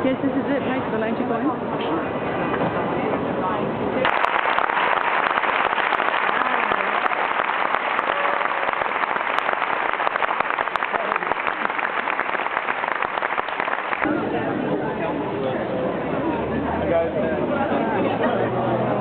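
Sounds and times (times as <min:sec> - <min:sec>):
audience applauding: 0:04.0 - 0:14.1.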